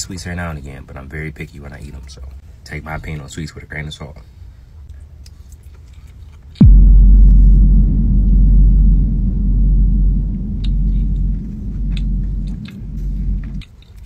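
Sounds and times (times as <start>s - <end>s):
loud deep rumble: 6.6s - 13.6s.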